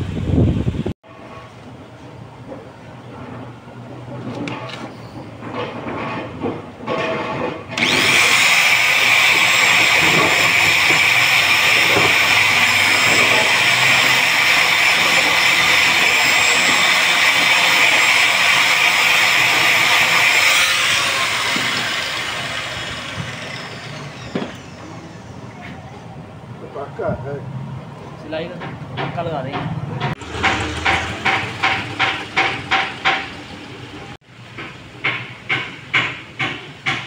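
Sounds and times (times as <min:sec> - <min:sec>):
angle grinder buffing rubber: 0:07.7 - 0:25.4.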